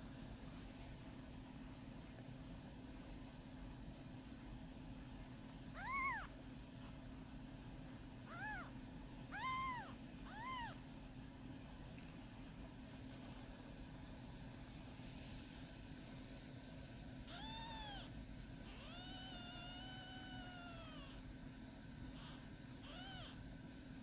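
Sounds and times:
faint steady hum: 0.0s - 24.0s
kittens mewing: 5.8s - 6.4s, 8.2s - 10.9s, 17.3s - 21.3s, 22.1s - 23.4s.

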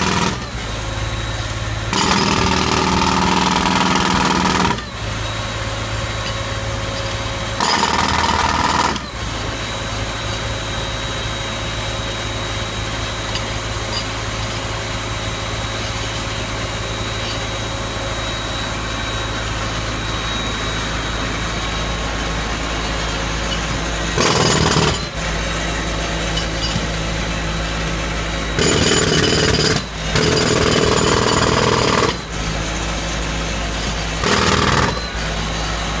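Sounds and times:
jackhammer breaking concrete: 0.0s - 0.5s, 1.9s - 5.0s, 7.6s - 9.2s, 24.2s - 25.2s, 28.6s - 32.5s, 33.7s - 35.3s
air compressor engine droning: 0.0s - 36.0s.

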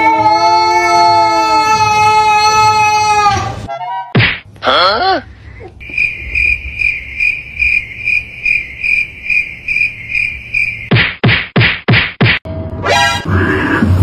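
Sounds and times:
sharp whacks: 4.2s - 4.5s, 10.9s - 12.5s
cricket chirping: 5.8s - 11.0s.

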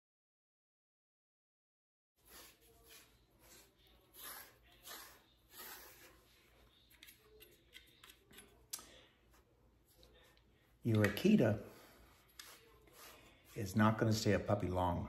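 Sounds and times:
hands rubbing dog fur: 10.9s - 13.7s.

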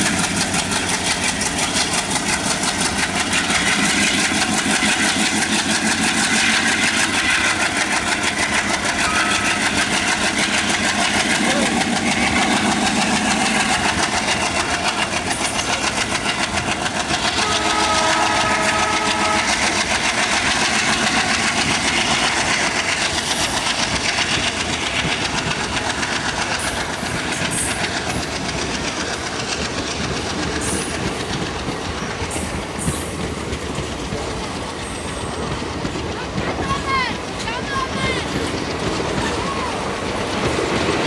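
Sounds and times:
train wheels clattering over rail joints: 0.0s - 41.0s
horn-like tone: 17.4s - 19.5s.

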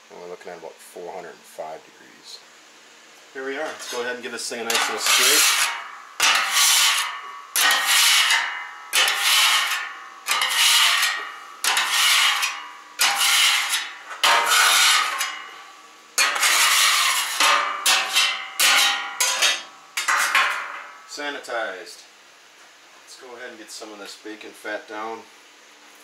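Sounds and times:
metal scraper rasping on steel: 4.7s - 15.5s, 16.2s - 20.6s.

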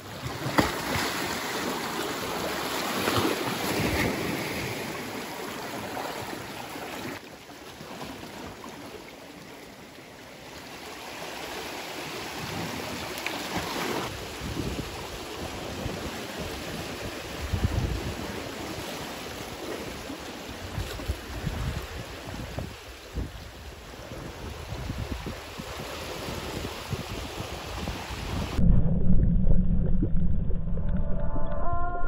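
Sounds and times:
sea water splashing against rocks: 0.0s - 28.6s
water lapping: 0.0s - 28.6s
wind on microphone: 14.0s - 18.5s, 20.6s - 32.0s.

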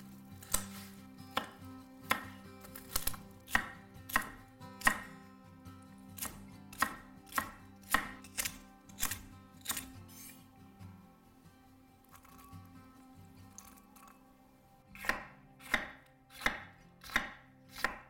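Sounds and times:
soft background music: 0.0s - 18.0s
knife chopping on wooden board: 0.4s - 5.2s, 6.2s - 10.3s, 15.0s - 18.0s.

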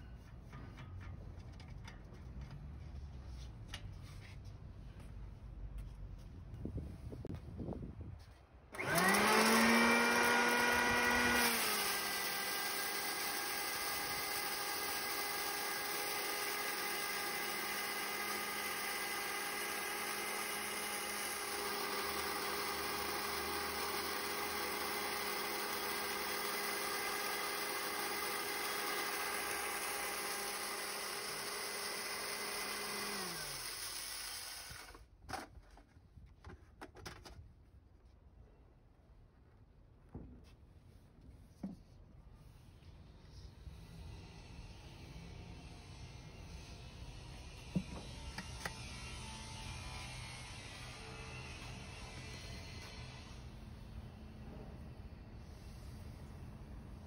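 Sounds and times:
electric grain mill motor whining: 8.7s - 35.0s, 47.4s - 53.6s.

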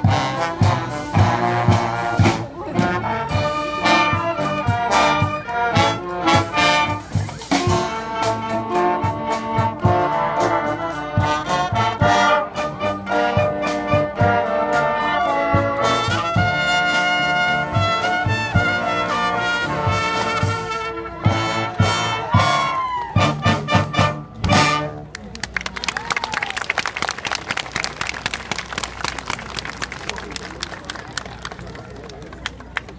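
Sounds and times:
marching band playing: 0.0s - 26.0s.

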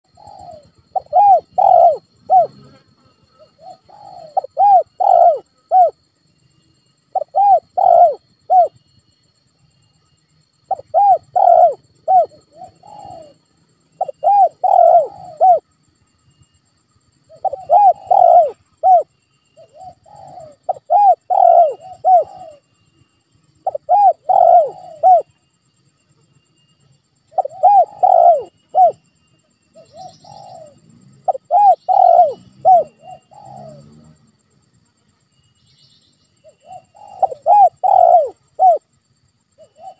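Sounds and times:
dove cooing: 0.0s - 6.0s, 7.1s - 8.8s, 10.7s - 13.4s, 14.0s - 15.6s, 17.3s - 22.6s, 23.6s - 25.3s, 27.3s - 29.0s, 29.8s - 34.2s, 36.4s - 38.9s, 39.6s - 39.9s.

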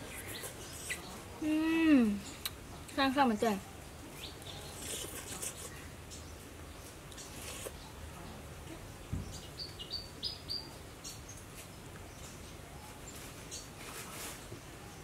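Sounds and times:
small bird chirping: 0.0s - 1.2s, 9.1s - 13.7s.

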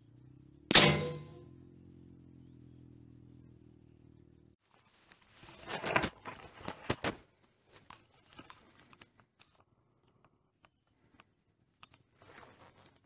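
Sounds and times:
crackling rustling handling noise: 4.6s - 9.6s, 10.8s - 13.0s.

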